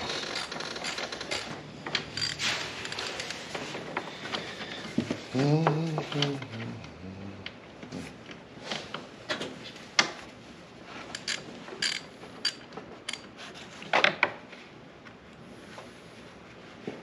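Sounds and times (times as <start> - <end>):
hand tools clicking and clattering: 0.0 - 4.8.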